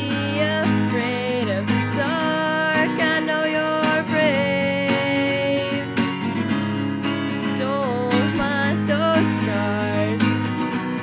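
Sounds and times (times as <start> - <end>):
woman singing wordlessly: 0.0 - 6.1, 7.3 - 10.6
acoustic guitar strumming: 0.0 - 11.0.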